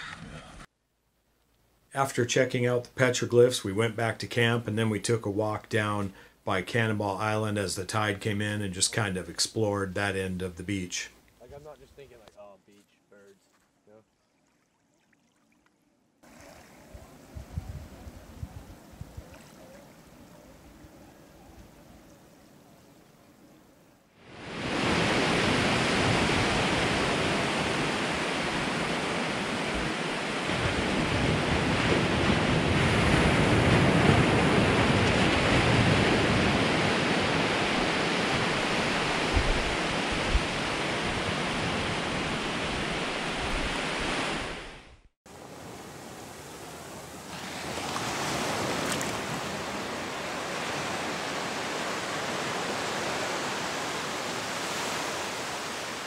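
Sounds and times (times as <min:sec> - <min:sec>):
wind: 0:00.0 - 0:56.0
ocean surf breaking on beach: 0:24.2 - 0:56.0.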